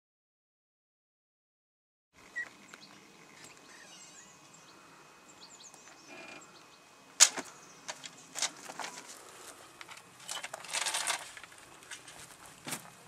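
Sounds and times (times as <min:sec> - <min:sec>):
faint bird chirps: 0:02.3 - 0:06.9
door creak: 0:06.0 - 0:06.5.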